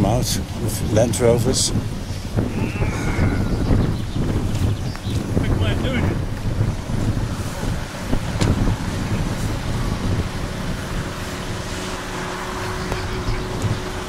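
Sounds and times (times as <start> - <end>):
wind buffeting microphone: 0.0 - 14.0
vehicle engine running: 3.1 - 14.0.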